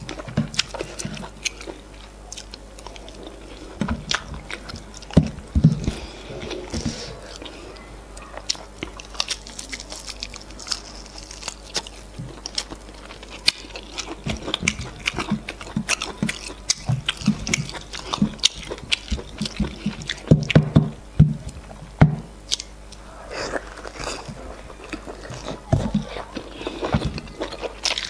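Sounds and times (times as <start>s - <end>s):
person chewing with mouth smacks: 0.0s - 20.6s, 22.5s - 28.0s.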